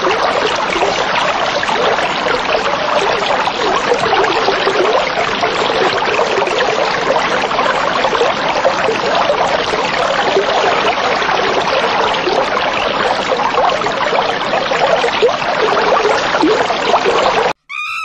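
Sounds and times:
aquarium water bubbling: 0.0s - 17.6s.

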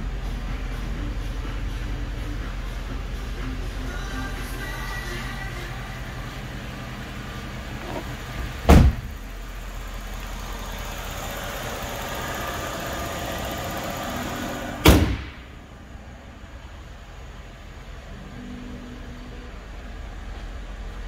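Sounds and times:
low engine hum: 0.0s - 21.0s
car door slamming: 7.7s - 9.2s, 14.8s - 15.4s
car hood slamming: 7.8s - 9.2s, 14.8s - 15.4s.

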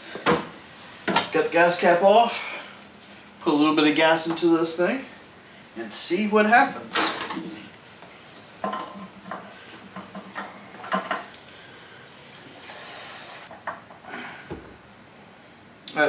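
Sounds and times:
hiss of pouring fuel: 11.7s - 13.5s.

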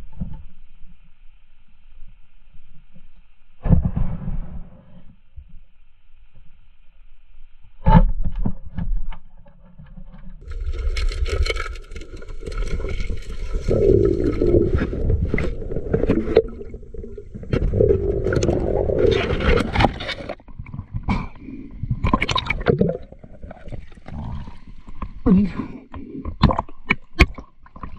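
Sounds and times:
underwater bubbling and rumbling: 10.1s - 27.9s
underwater scraping: 10.4s - 27.9s.

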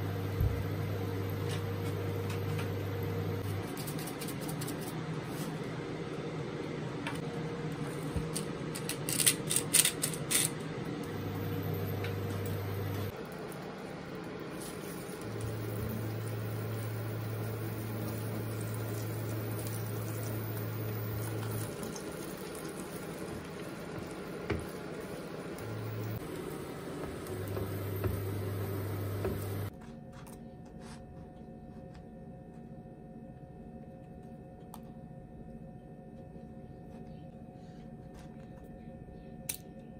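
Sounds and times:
hob humming: 10.8s - 29.7s
egg sizzling in a pan: 14.4s - 29.7s.

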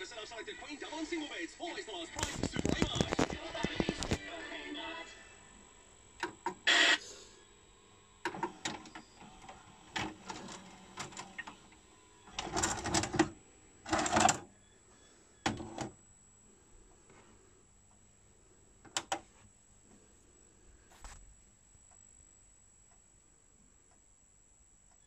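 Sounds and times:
tape mechanism whirring and clunking: 8.2s - 14.5s, 15.4s - 16.0s.

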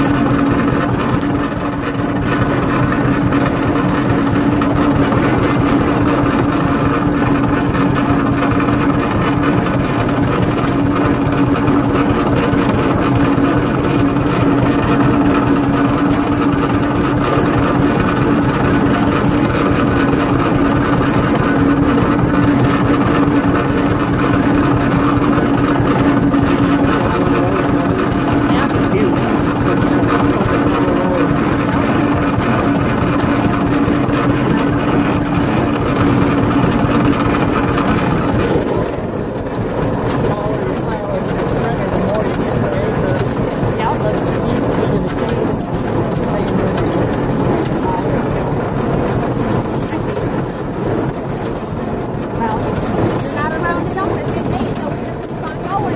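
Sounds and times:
tractor engine running: 0.0s - 55.9s.

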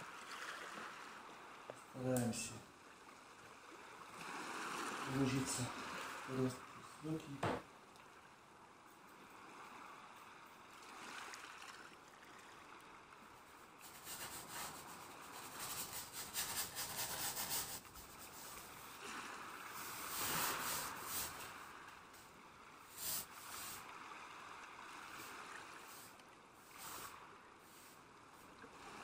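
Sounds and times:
paintbrush scrubbing on canvas: 13.8s - 18.7s, 19.8s - 21.6s, 22.9s - 23.8s.

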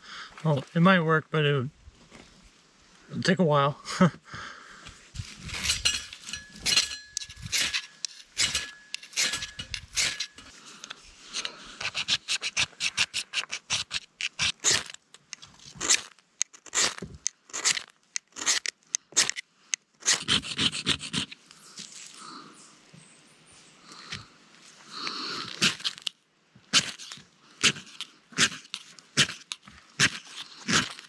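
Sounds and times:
dry tinder crackling and snapping: 5.2s - 19.4s, 25.4s - 31.0s.

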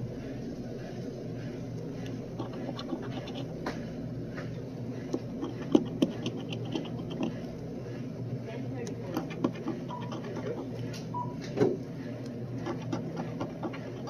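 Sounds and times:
low background hum: 0.0s - 14.0s
coin scratching lottery ticket: 2.4s - 3.6s, 5.1s - 7.5s, 8.9s - 10.9s, 12.5s - 14.0s.

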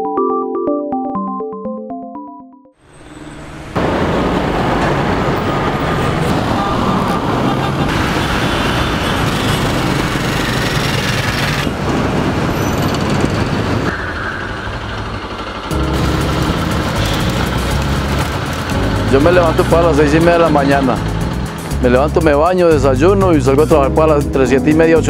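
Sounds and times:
motorcycles and cars passing: 2.8s - 22.7s.

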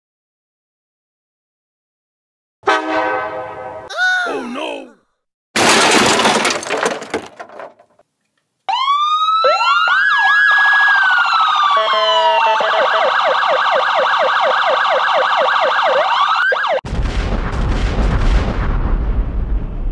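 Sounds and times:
loud crash smash: 5.6s - 7.7s, 16.9s - 19.9s
police sirens wailing: 8.7s - 16.8s
explosion booming: 16.8s - 19.9s.

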